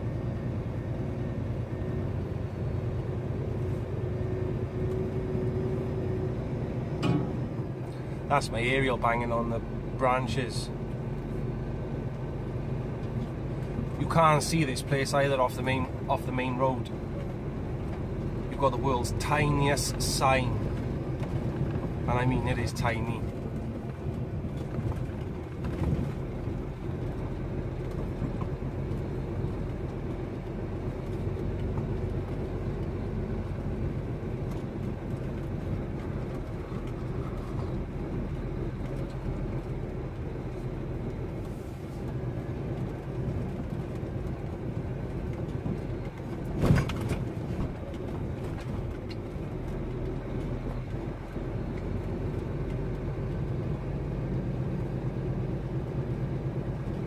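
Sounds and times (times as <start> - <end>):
lorry engine running: 0.0 - 57.0
thump in truck cab: 7.0 - 7.4, 46.6 - 47.3.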